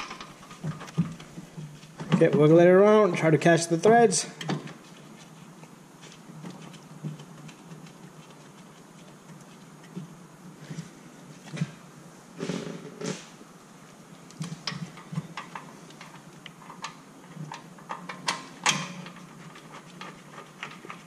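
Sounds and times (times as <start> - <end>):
metal clicks and knocks: 0.0 - 3.3, 14.3 - 21.0.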